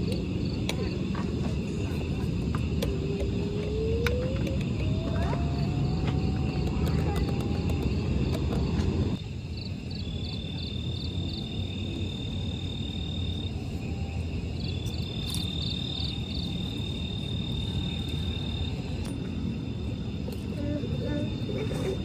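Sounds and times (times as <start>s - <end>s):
insect chirping and trilling: 0.0s - 22.0s
steady low rumble: 0.0s - 22.0s.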